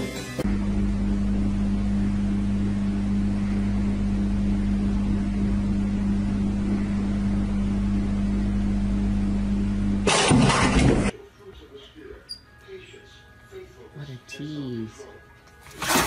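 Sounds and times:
low machine hum: 0.4 - 11.1.

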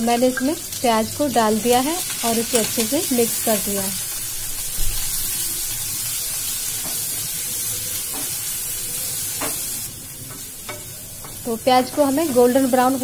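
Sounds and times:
onions sizzling in oil: 0.0 - 13.0.

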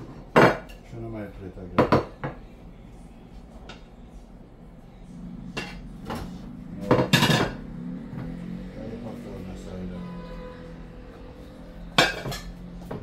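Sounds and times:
loud kitchenware clanks: 0.0 - 0.9, 5.6 - 7.7, 11.9 - 13.0
metal spoon knocking on pots: 5.6 - 7.7, 11.9 - 13.0.

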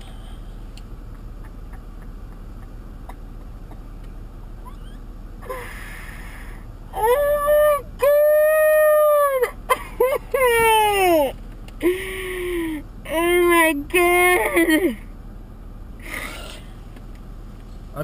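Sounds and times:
car cabin hum: 0.0 - 18.0
woman wailing: 6.9 - 11.4, 12.6 - 15.0
woman sobbing: 6.9 - 15.0.

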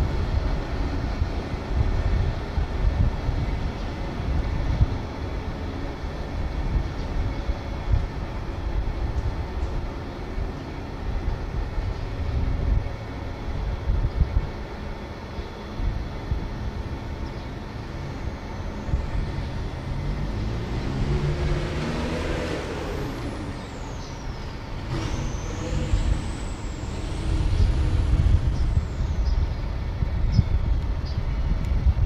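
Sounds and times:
diesel locomotive engine: 0.0 - 32.0.

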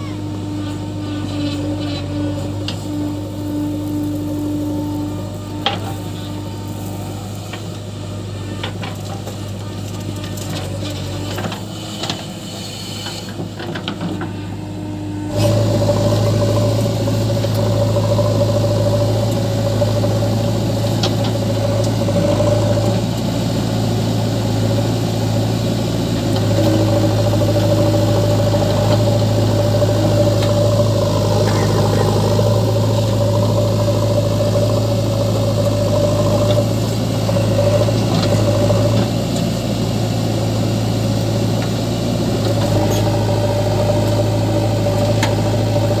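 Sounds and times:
diesel engines idling: 0.0 - 12.5, 13.4 - 46.0
higher engine drone: 14.3 - 46.0.

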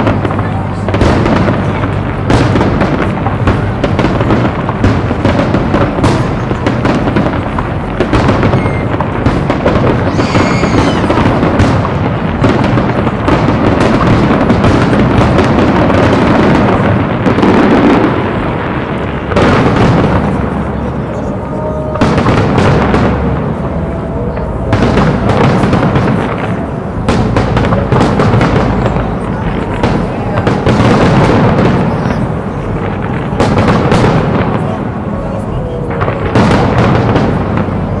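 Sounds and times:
fireworks bursting and crackling: 0.0 - 38.0.

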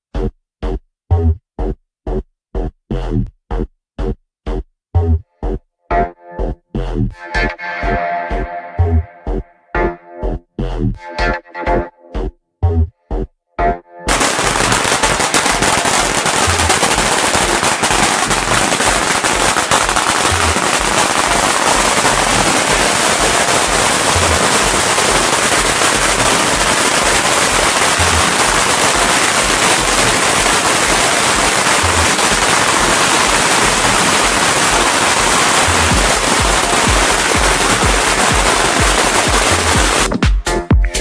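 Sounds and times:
firecrackers crackling: 14.1 - 40.2.

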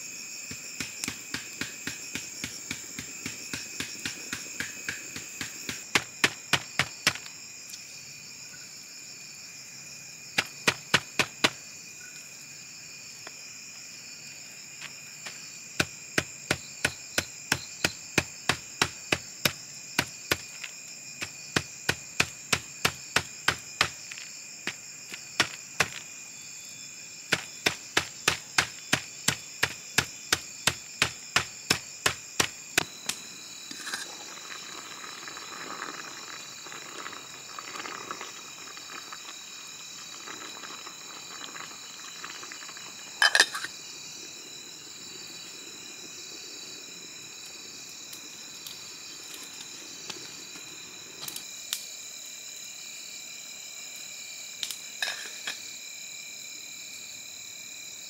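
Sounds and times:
insects chirring: 0.0 - 58.0
cleaver chopping on wooden block: 27.3 - 32.9.

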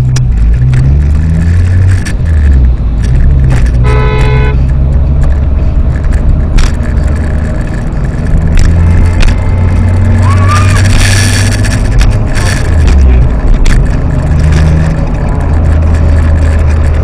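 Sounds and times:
car engine and road drone: 0.0 - 17.0
car horn honk: 3.8 - 4.7.

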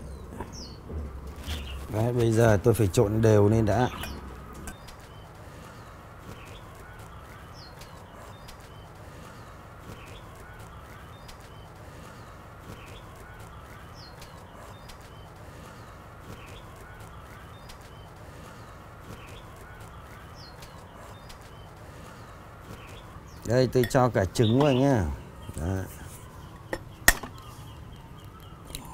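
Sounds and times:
birds chirping: 0.0 - 28.9.

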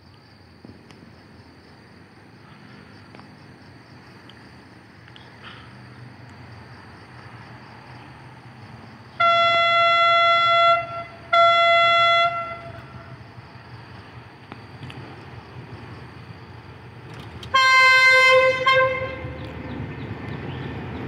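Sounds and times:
locomotive horn: 9.1 - 13.2, 17.4 - 19.5.

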